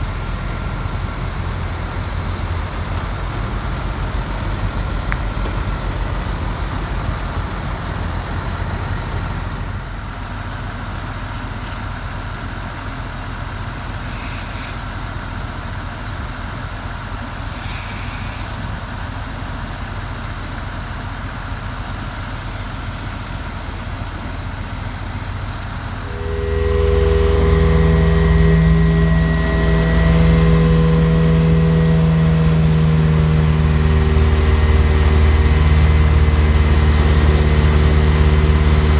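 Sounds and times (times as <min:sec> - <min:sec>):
truck engine running: 0:00.0 - 0:38.9
vacuum system hum: 0:23.7 - 0:38.9.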